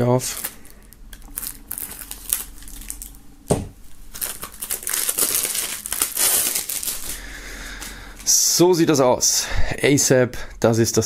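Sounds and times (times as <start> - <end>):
plastic wrap crinkling: 0.0 - 8.5.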